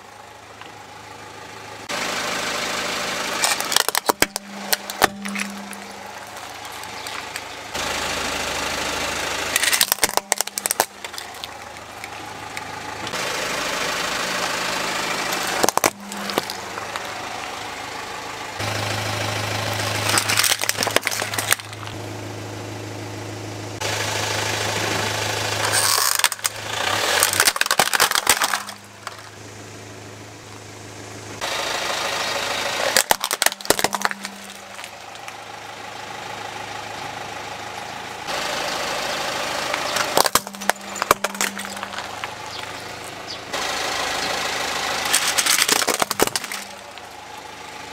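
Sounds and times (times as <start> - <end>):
car engine idling: 0.0 - 47.9
plastic toys cracking and crunching: 3.4 - 7.5, 9.5 - 13.1, 15.3 - 17.2, 19.7 - 22.0, 25.6 - 29.4, 32.8 - 35.4, 39.7 - 43.1, 45.0 - 47.1.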